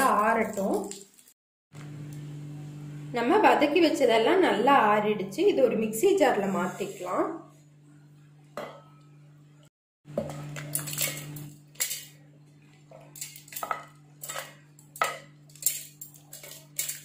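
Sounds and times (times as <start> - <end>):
food clattering into metal jar: 13.2 - 17.0.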